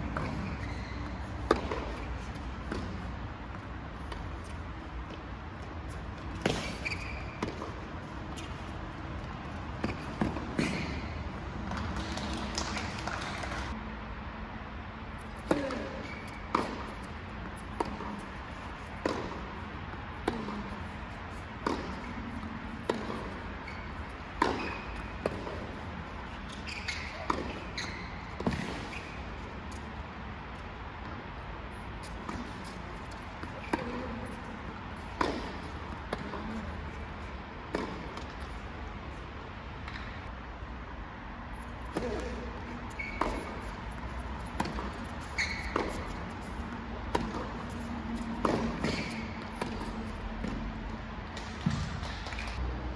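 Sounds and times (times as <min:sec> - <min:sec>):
tennis ball hits: 0:15.4 - 0:19.6, 0:21.6 - 0:23.4, 0:26.8 - 0:27.6, 0:35.0 - 0:36.6, 0:47.1 - 0:50.6.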